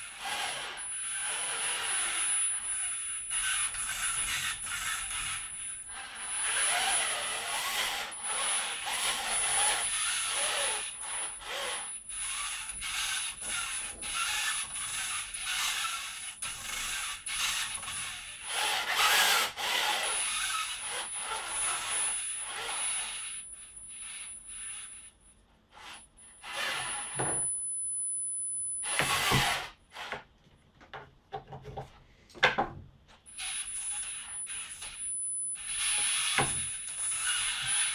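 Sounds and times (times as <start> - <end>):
robot arm motors whirring: 0.0 - 24.9, 33.4 - 37.9
thin high whine: 23.0 - 29.8, 33.3 - 37.9.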